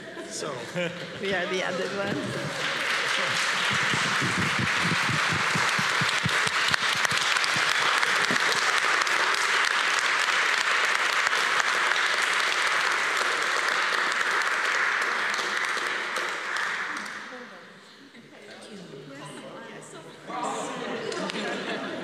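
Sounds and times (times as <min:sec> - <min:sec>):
crowd applauding: 0:01.1 - 0:17.4.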